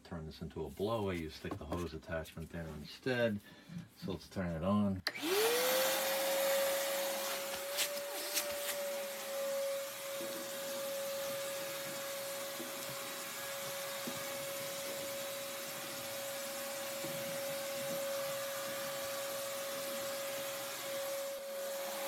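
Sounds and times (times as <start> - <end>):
shop vacuum running: 5.1 - 22.0.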